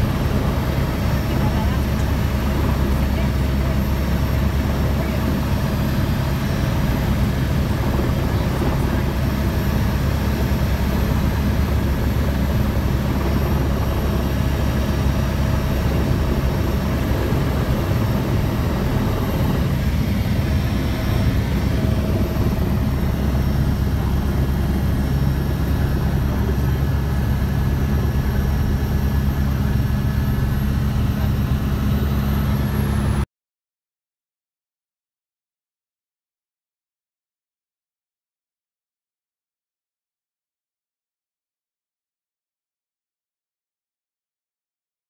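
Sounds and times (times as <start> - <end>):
helicopter rotor and engine: 0.0 - 33.3.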